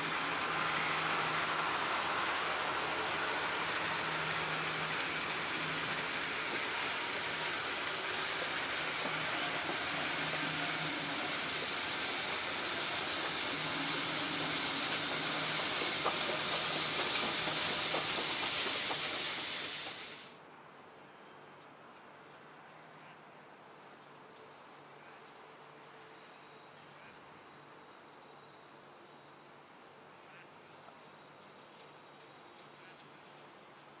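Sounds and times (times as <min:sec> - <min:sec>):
train carriages rattling on rails: 0:00.0 - 0:20.3
steam locomotive hissing: 0:00.0 - 0:20.4.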